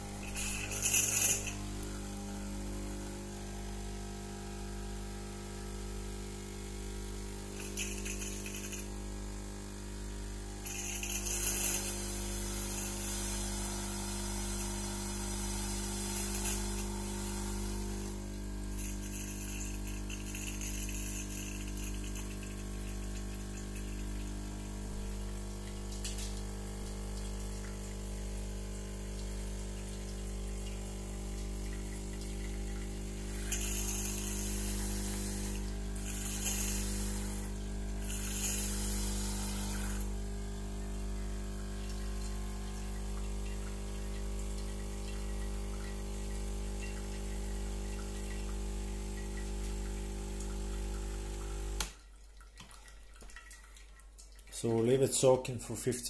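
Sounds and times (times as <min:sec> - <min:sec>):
espresso machine pump humming: 0:00.0 - 0:52.0
water and steam hissing: 0:10.6 - 0:25.5, 0:32.9 - 0:41.7.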